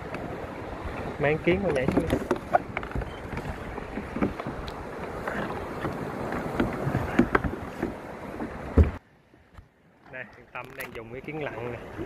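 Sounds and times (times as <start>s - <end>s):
wind on microphone: 0.0s - 9.0s
water slapping against a kayak: 0.0s - 12.0s.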